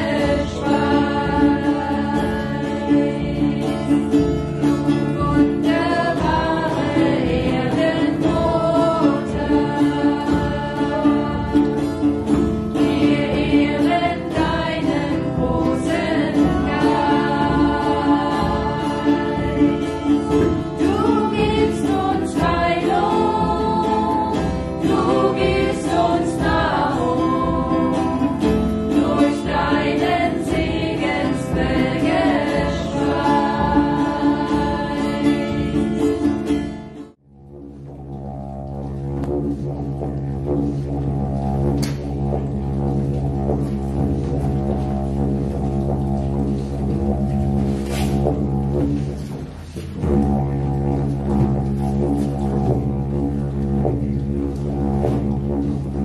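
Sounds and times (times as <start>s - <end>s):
group singing a chant: 0.0s - 36.6s
acoustic guitar: 0.0s - 56.0s
frame drums beat: 0.0s - 56.0s
held drone: 37.2s - 56.0s.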